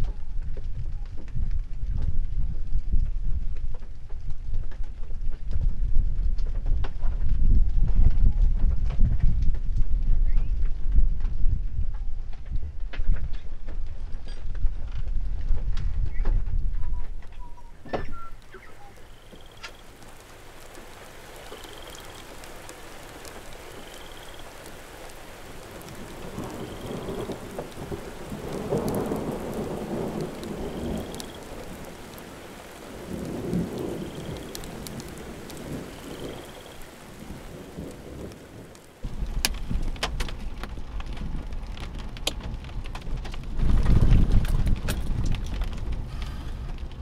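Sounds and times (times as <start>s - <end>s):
steady rain: 0.0s - 47.0s
thunder rumbling: 0.0s - 47.0s
raindrops ticking on a car: 18.0s - 47.0s.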